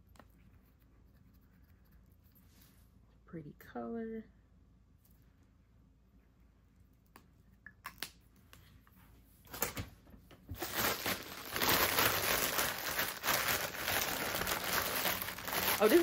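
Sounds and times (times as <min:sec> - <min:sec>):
plastic bag crinkling: 0:10.5 - 0:16.0.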